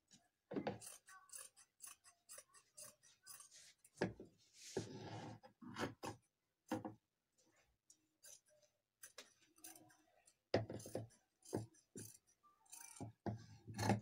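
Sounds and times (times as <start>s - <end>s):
scissors snipping fabric: 0.7s - 3.5s.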